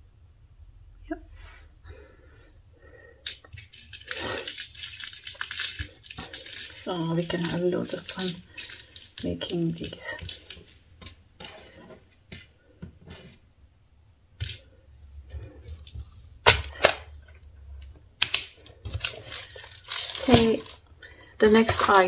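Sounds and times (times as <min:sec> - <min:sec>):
beads shifting in box: 0:03.2 - 0:10.8, 0:18.8 - 0:22.0.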